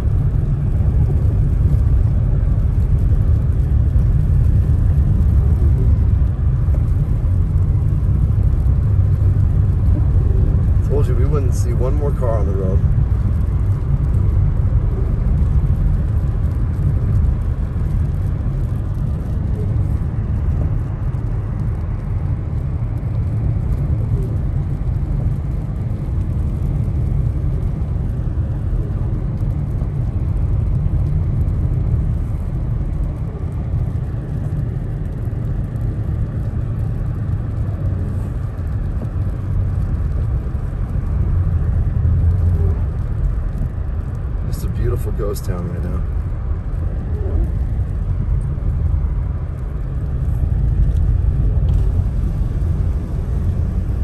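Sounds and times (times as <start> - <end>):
car tyres and engine rumble: 0.0 - 54.0.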